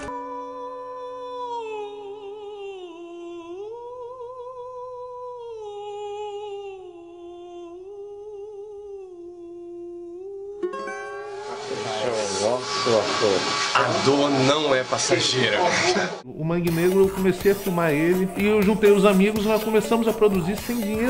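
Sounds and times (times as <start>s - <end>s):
person humming: 0.4s - 11.0s.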